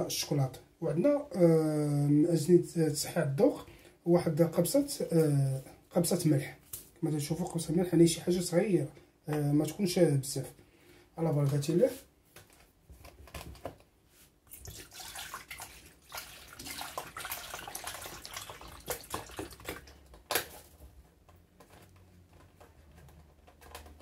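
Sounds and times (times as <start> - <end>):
milk pouring into a metal saucepan: 14.5 - 19.8.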